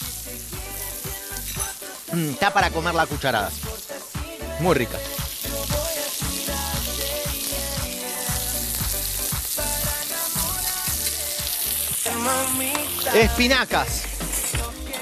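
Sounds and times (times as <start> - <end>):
background music with a beat: 0.0 - 15.0
food sizzling in pans: 0.0 - 15.0.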